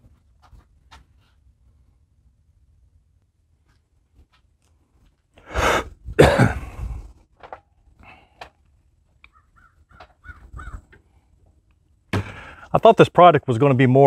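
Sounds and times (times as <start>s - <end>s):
man coughing: 5.7s - 6.9s.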